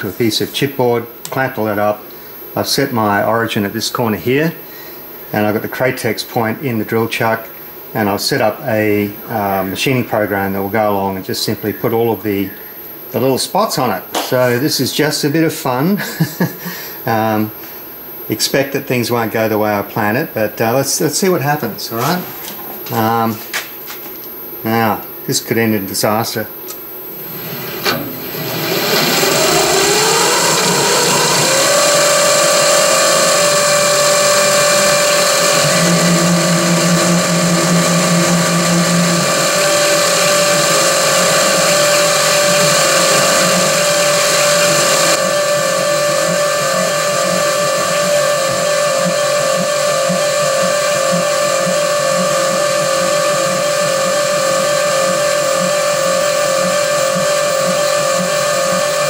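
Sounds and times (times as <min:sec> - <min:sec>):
milling machine spindle whine: 0:00.0 - 0:59.0
low hum: 0:26.7 - 0:59.0.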